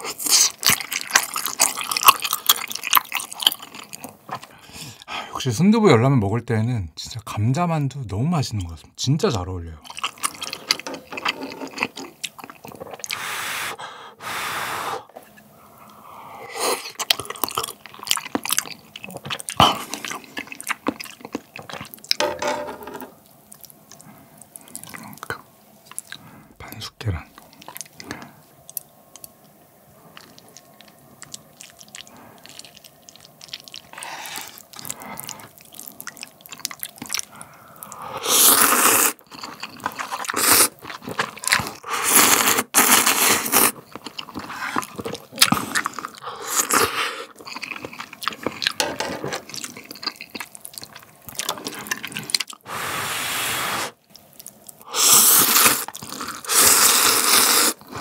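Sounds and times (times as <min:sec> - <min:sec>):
person chewing: 0:00.0 - 0:05.1, 0:09.8 - 0:13.7, 0:15.0 - 0:22.3, 0:23.1 - 0:26.3, 0:27.3 - 0:29.4, 0:30.0 - 0:52.9, 0:53.6 - 0:58.0
wet slurps of noodles: 0:51.7 - 0:54.0, 0:54.9 - 0:58.0.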